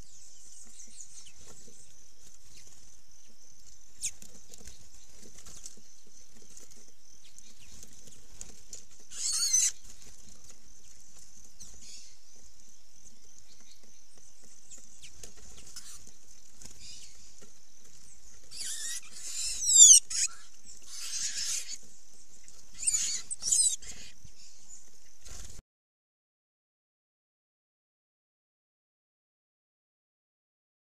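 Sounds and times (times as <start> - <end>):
high squeaky bird calls: 9.1 - 9.9, 15.6 - 16.0, 18.4 - 21.8, 22.5 - 24.2.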